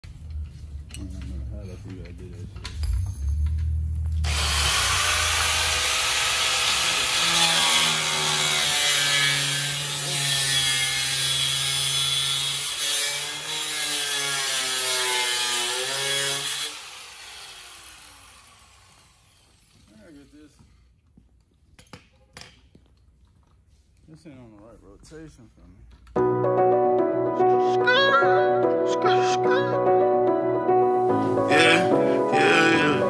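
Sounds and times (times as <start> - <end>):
cutoff wheel grinding metal: 4.2 - 19.8.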